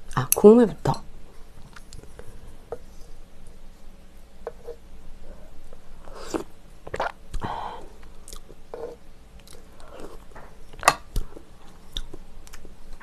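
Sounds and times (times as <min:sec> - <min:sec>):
person slurping and swallowing: 0:06.2 - 0:07.2.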